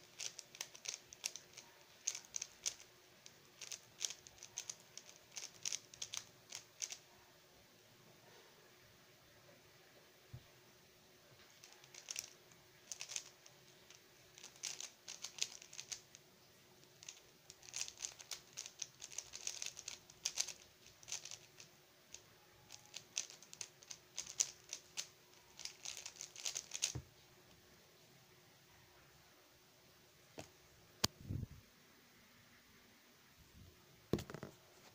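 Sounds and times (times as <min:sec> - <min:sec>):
plastic puzzle cube clicking: 0:00.0 - 0:07.0, 0:11.6 - 0:16.2, 0:16.9 - 0:27.0.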